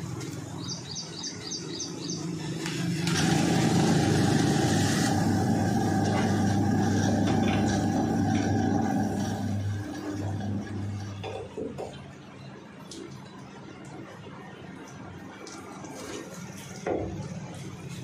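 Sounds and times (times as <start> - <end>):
machine humming and whining: 0.0 - 16.0
bird chirping: 0.6 - 2.4
coolant hiss: 2.5 - 11.4.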